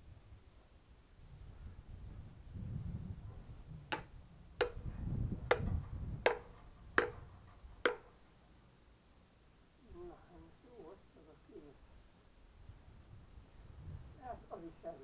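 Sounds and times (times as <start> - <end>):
hatchet chopping kindling: 3.9 - 4.9, 5.5 - 8.1.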